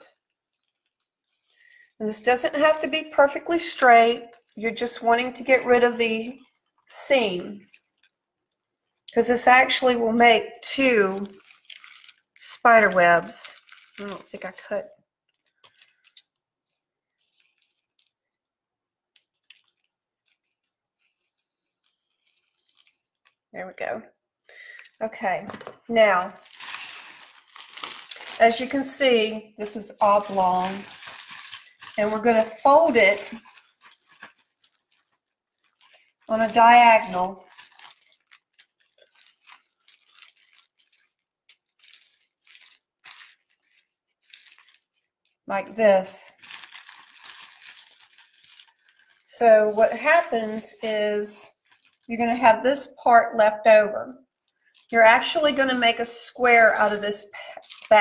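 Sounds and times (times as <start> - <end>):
scissors cutting plastic bag: 10.8 - 14.8, 26.4 - 44.9, 46.4 - 51.0, 56.6 - 58.0.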